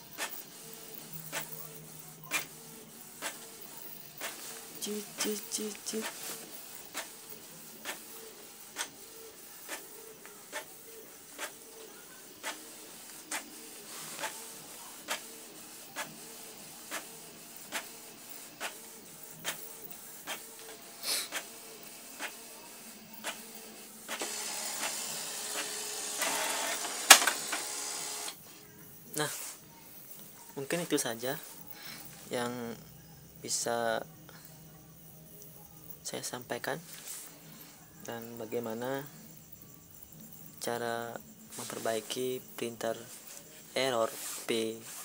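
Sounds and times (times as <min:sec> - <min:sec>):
printer whirring: 0:00.0 - 0:28.6
printer carriage clicking: 0:25.6 - 0:27.7.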